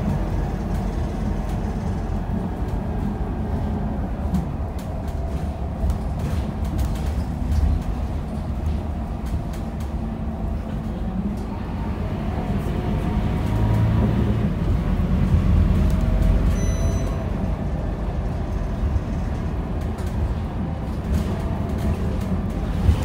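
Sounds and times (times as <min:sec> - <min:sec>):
bus engine rumble: 0:00.0 - 0:23.0
road noise: 0:00.0 - 0:23.0.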